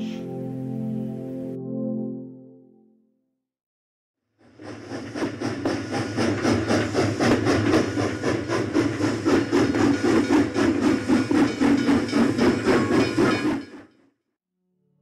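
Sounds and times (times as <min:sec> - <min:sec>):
steam train chuffing: 0:04.4 - 0:13.9.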